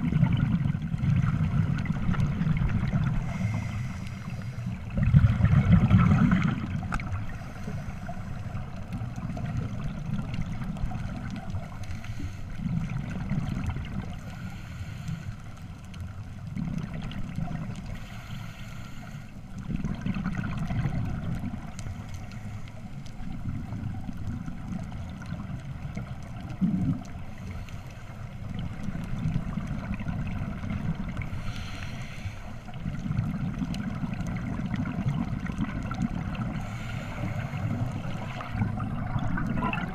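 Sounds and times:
bubbles gurgling underwater: 0:00.0 - 0:03.7, 0:04.8 - 0:07.6, 0:08.5 - 0:11.8, 0:12.6 - 0:14.2, 0:15.9 - 0:17.9, 0:19.5 - 0:21.8, 0:23.2 - 0:27.4, 0:28.5 - 0:31.4, 0:32.7 - 0:39.9
steady underwater hiss: 0:00.0 - 0:39.9.

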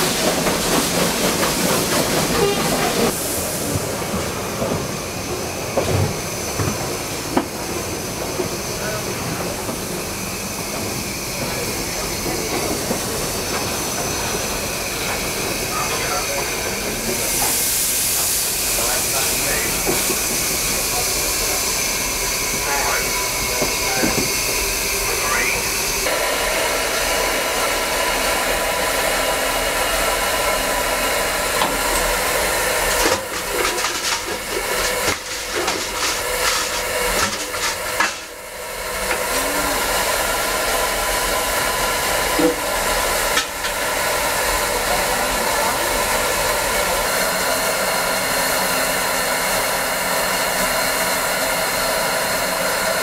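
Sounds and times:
steam locomotive hissing steam: 0:00.0 - 0:53.0.

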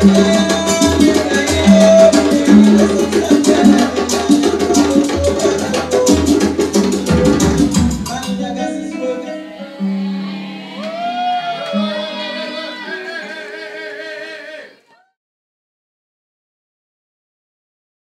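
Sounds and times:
dance music drum beat: 0:00.0 - 0:08.3
person singing: 0:00.0 - 0:15.0.

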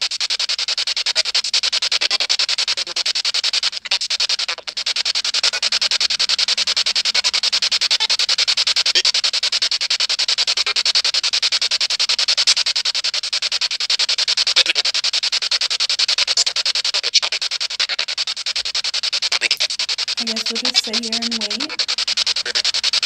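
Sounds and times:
pulsing radio static: 0:19.5 - 0:21.8.

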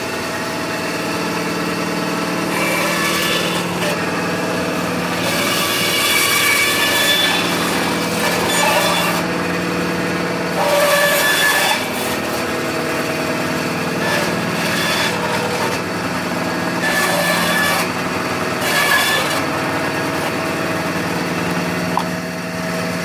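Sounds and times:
saw blade cutting coconut: 0:00.0 - 0:22.3
band saw motor hum: 0:00.0 - 0:23.0.

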